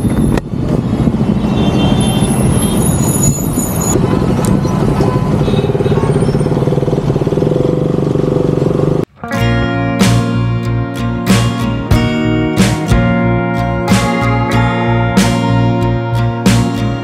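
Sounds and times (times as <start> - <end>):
motorcycle engine accelerating: 4.0 - 9.1.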